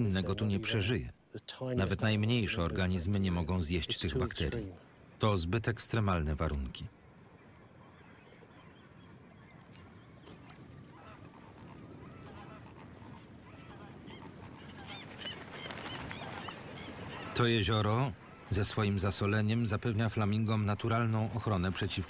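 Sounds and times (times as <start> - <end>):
flamingos calling: 7.2 - 22.0.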